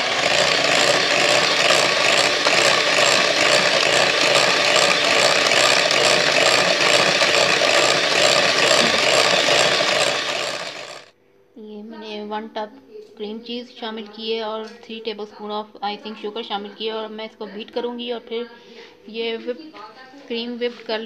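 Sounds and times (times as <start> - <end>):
electric hand mixer whirring: 0.0 - 11.1.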